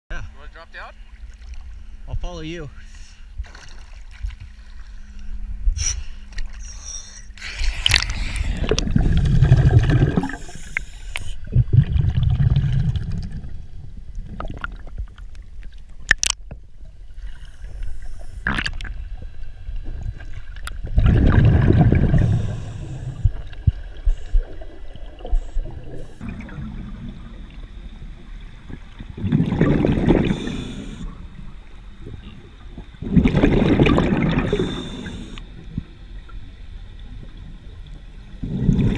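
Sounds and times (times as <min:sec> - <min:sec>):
bubbly exhaled air from regulator: 0:05.8 - 0:15.0, 0:17.4 - 0:19.0, 0:20.8 - 0:31.4, 0:32.0 - 0:35.5, 0:38.4 - 0:38.9.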